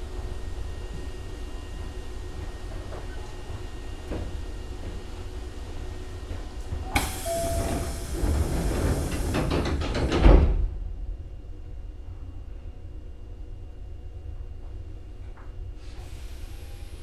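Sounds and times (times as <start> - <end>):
low rumble of standing train: 0.0 - 17.0
train doors knocking shut: 6.3 - 10.8
brief tone: 7.2 - 8.0.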